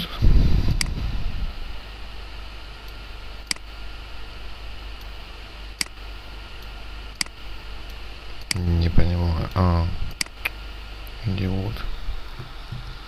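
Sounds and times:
low hum and hiss: 0.0 - 13.0
computer mouse clicks: 2.9 - 3.7.

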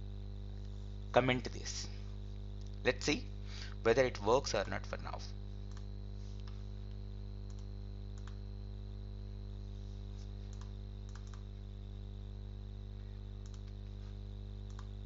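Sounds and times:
low electrical hum: 0.0 - 15.0
keyboard and mouse clicks: 10.5 - 11.4, 13.4 - 13.8, 14.7 - 14.9.

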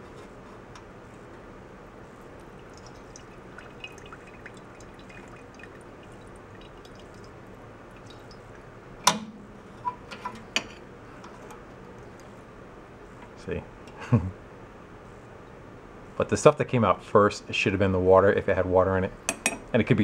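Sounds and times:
gasoline dripping into a mug: 2.5 - 8.7.

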